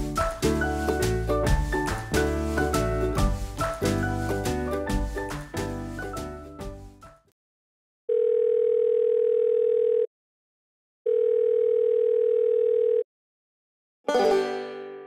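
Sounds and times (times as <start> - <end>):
plucked chord ringing: 14.1 - 15.0.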